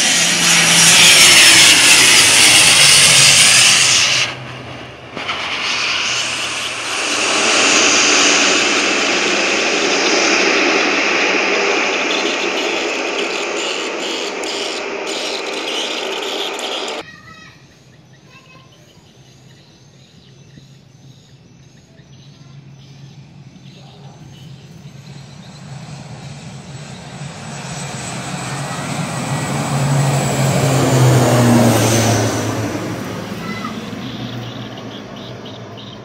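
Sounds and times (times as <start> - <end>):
loud steady rushing noise: 0.0 - 17.0
turboprop airliner taking off: 0.0 - 17.0, 22.6 - 36.0
birds or insects chirping: 11.7 - 27.8, 33.0 - 36.0.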